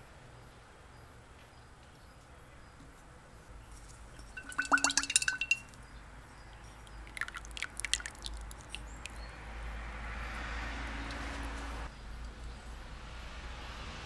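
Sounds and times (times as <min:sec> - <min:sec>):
glass clinks: 0:04.2 - 0:05.7.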